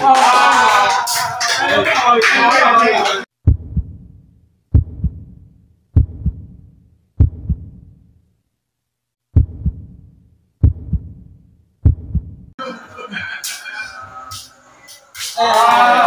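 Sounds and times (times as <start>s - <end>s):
heartbeat thumps: 3.4s - 8.1s, 9.3s - 12.6s.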